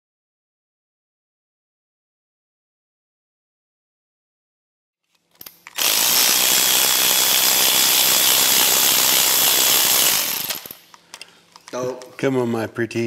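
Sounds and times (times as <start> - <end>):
electric ratchet running: 5.4 - 10.9.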